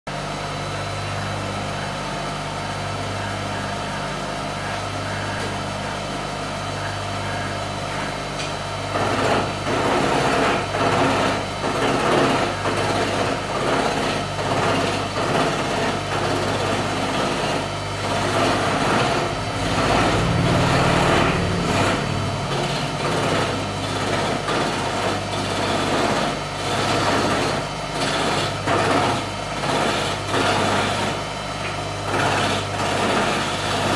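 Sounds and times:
turning tool shaving wood: 0:09.0 - 0:31.1, 0:32.1 - 0:33.9
electric lathe humming: 0:16.7 - 0:27.5.

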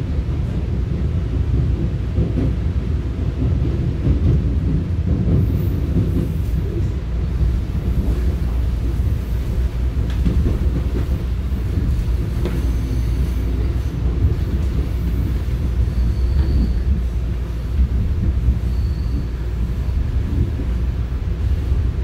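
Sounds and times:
train rumbling: 0:00.0 - 0:22.0
faint high squeals: 0:15.8 - 0:17.0, 0:18.6 - 0:19.6.

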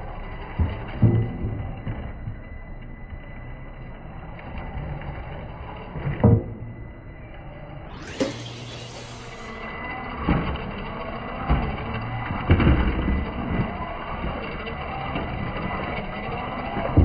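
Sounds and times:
toy car electric motor: 0:07.6 - 0:17.0.

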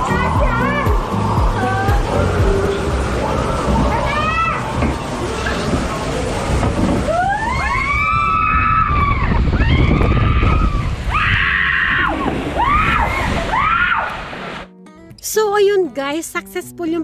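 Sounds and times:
steady low rumble: 0:00.0 - 0:07.2
riders screaming: 0:07.0 - 0:14.2.

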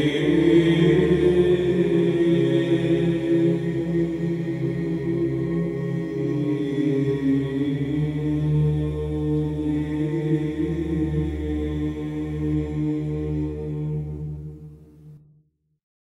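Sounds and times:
choir chanting a cappella: 0:00.0 - 0:14.8
low vocal drone: 0:00.0 - 0:14.9.

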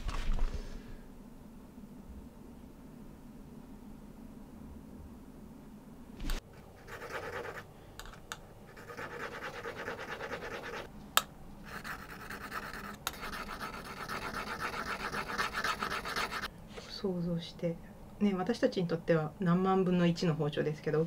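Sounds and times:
chisel scratching on abrasive disc: 0:11.7 - 0:16.5.

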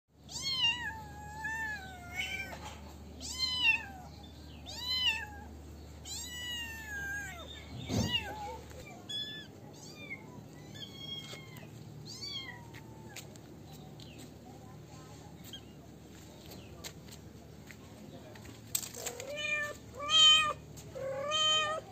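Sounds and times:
kitten meowing: 0:04.7 - 0:13.2.

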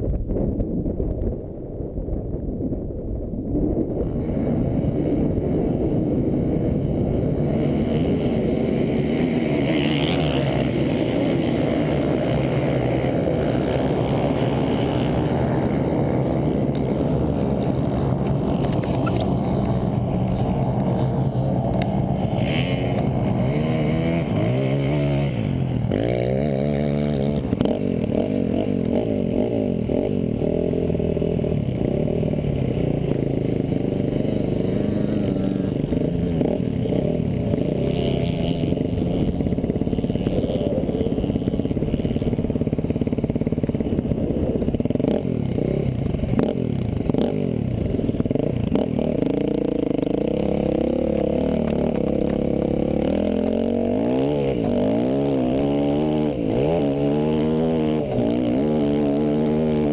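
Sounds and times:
dirt bike engine revving: 0:04.5 - 0:59.9.

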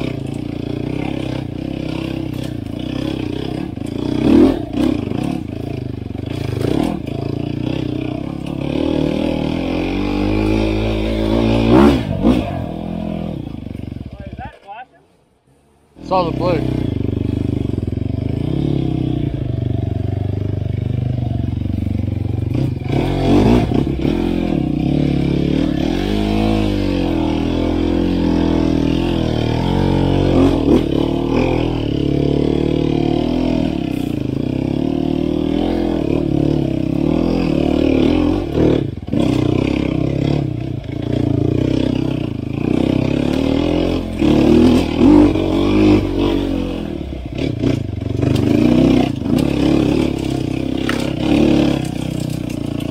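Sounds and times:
bike knocks and rattles: 0:00.0 - 0:08.8, 0:47.4 - 0:52.9
dirt bike engine revving: 0:00.0 - 0:14.6, 0:16.0 - 0:52.9.

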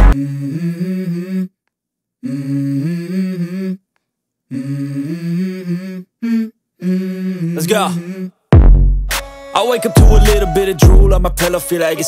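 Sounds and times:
hummed vocal harmony: 0:00.0 - 0:01.5, 0:02.2 - 0:03.8, 0:04.5 - 0:08.4.

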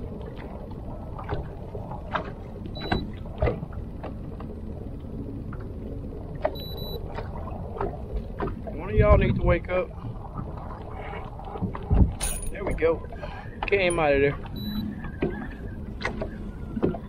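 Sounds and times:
boat engine rumble: 0:00.0 - 0:17.0
high beeps: 0:14.6 - 0:14.8.

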